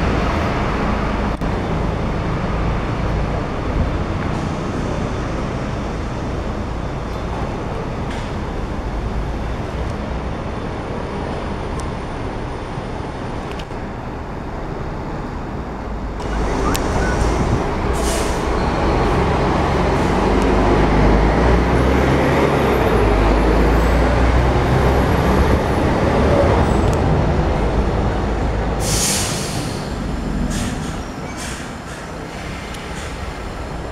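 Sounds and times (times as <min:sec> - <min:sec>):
bus diesel engine pulling away: 0:00.0 - 0:33.9
compressed-air hiss: 0:28.8 - 0:33.1.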